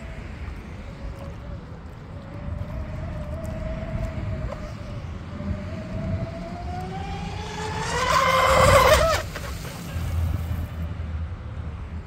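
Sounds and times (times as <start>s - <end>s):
electric motors whining: 1.1s - 10.5s.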